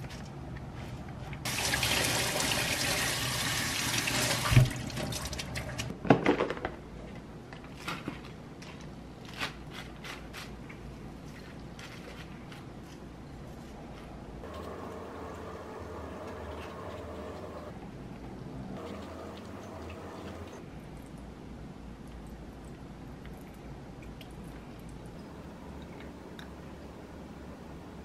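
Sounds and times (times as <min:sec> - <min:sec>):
sink tap running: 0:01.5 - 0:05.9.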